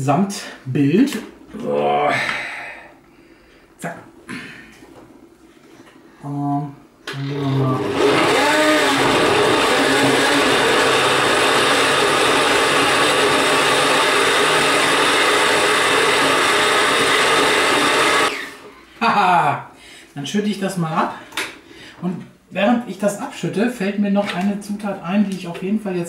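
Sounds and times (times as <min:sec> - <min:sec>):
blender running: 0:07.1 - 0:18.7.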